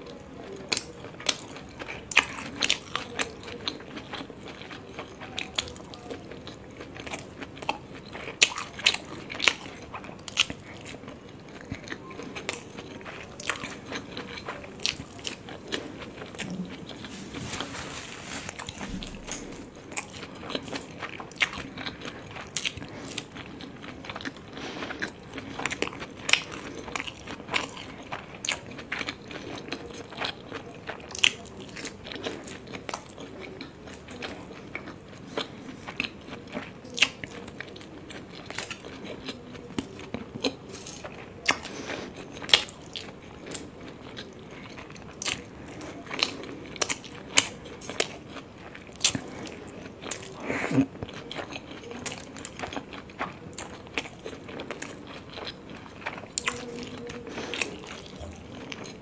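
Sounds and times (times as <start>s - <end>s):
wet chewing and mouth smacks: 18.5s - 59.0s.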